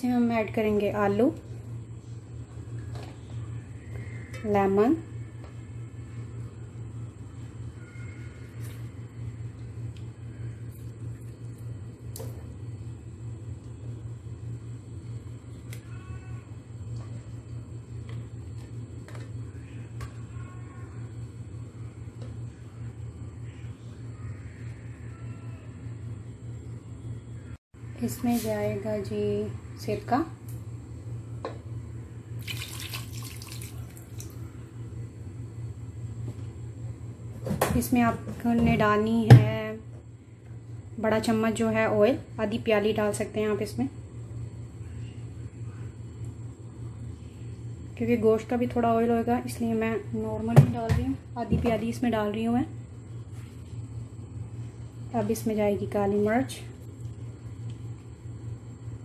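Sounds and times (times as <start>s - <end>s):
steady low hum: 0.0s - 59.0s
liquid splashing into a pot: 32.4s - 34.4s.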